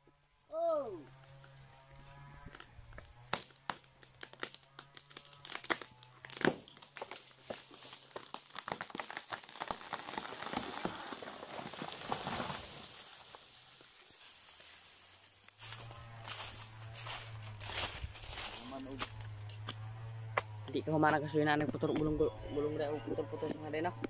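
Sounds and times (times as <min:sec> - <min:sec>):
twigs snapping: 0:01.9 - 0:13.9
footsteps crunching on dry leaves: 0:06.0 - 0:20.6.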